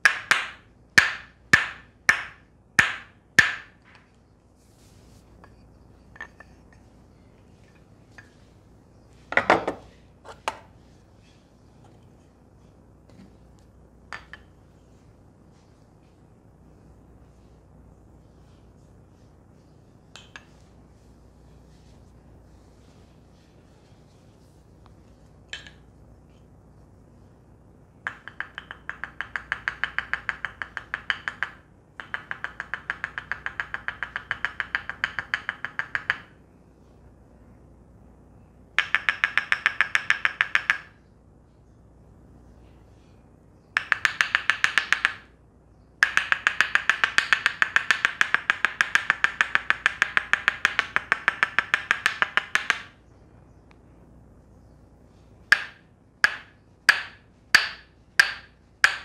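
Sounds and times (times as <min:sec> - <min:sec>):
wooden mallet tapping wooden stick: 0:00.0 - 0:04.1, 0:05.4 - 0:06.8, 0:14.1 - 0:14.6, 0:20.1 - 0:20.6, 0:25.5 - 0:25.9, 0:28.0 - 0:36.4, 0:38.8 - 0:41.0, 0:43.8 - 0:45.3, 0:46.0 - 0:53.0, 0:55.5 - 0:59.0.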